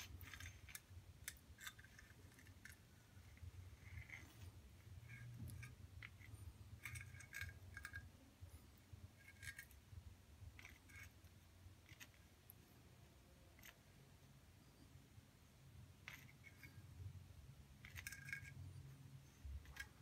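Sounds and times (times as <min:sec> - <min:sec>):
wire clicking on ceramic tile: 0:00.0 - 0:04.4, 0:05.0 - 0:08.3, 0:17.8 - 0:18.8
low steady hum: 0:00.0 - 0:20.0.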